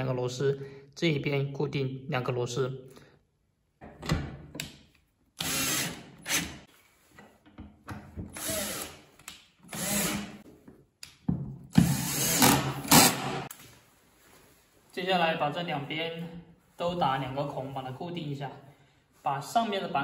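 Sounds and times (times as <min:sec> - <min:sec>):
cordless drill driving screws: 0:05.4 - 0:06.6, 0:08.3 - 0:09.0, 0:09.7 - 0:10.4, 0:11.7 - 0:13.4.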